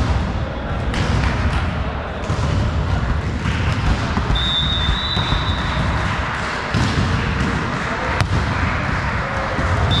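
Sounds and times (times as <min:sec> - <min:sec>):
sports hall noise: 0:00.0 - 0:10.0
referee's whistle: 0:04.3 - 0:05.8.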